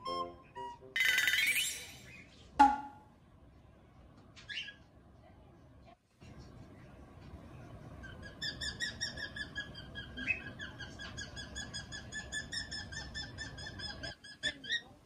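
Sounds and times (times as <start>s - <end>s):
cockatiel chirping: 8.0s - 14.9s.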